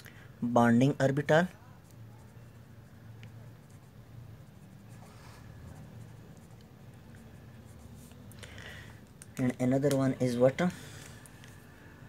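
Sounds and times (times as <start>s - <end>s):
low steady hum: 0.0s - 12.0s
pen scratching on paper: 1.8s - 8.2s.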